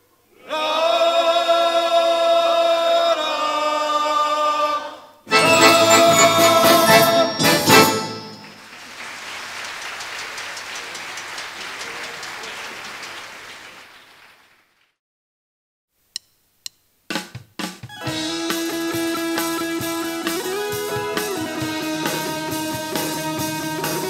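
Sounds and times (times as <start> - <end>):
choir and band final chord: 5.3 - 8.7
audience applause: 5.3 - 14.9.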